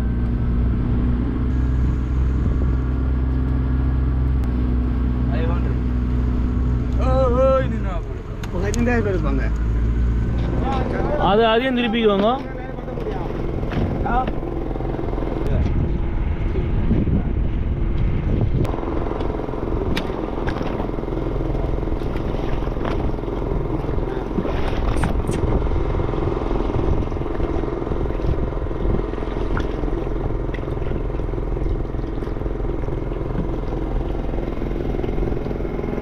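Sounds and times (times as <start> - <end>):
boat engine droning: 0.0 - 36.0.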